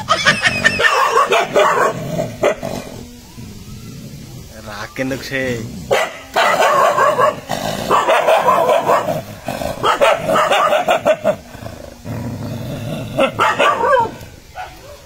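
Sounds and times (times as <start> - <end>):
dog barking rapidly: 0.0 - 2.7, 5.9 - 11.5, 13.2 - 15.0
dog growling: 0.0 - 15.0.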